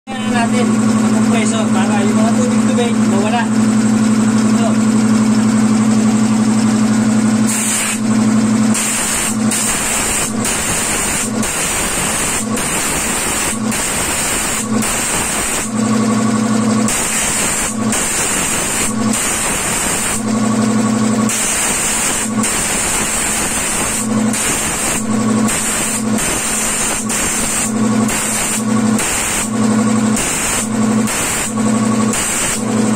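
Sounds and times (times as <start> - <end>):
air compressor humming: 0.1 - 32.9
compressed air blow gun hissing: 7.5 - 8.0, 8.8 - 15.7, 16.9 - 20.2, 21.3 - 29.5.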